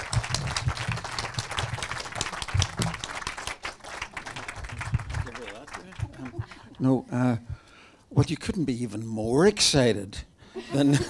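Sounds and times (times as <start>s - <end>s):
small audience applauding: 0.0s - 6.8s.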